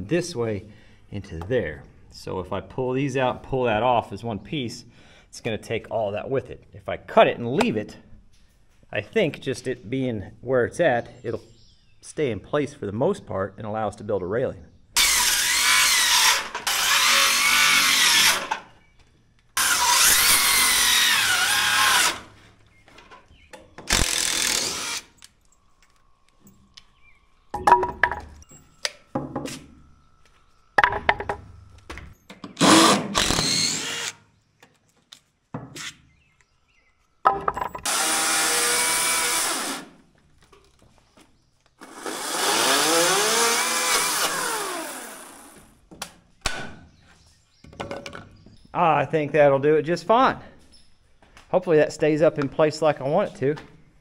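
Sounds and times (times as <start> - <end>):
circular saw cutting wood: 15.0 - 18.6, 19.6 - 22.3, 37.8 - 39.9, 41.8 - 45.7
boards knocking and clattering: 27.6 - 28.4, 30.8 - 32.5, 37.2 - 37.9, 47.6 - 48.5.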